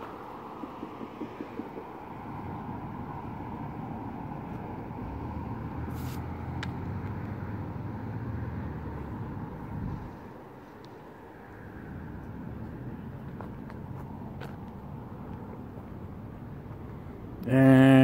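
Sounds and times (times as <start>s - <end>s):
vehicle engine rumbling: 0.0s - 18.0s
short hiss: 5.9s - 6.3s.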